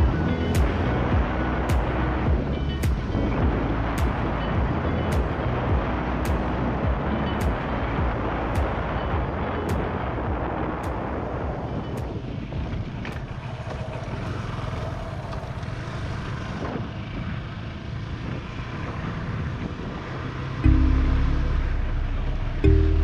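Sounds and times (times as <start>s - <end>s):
wind rushing over microphone: 0.0s - 22.7s
motorcycle engine and road rumble: 0.0s - 23.0s.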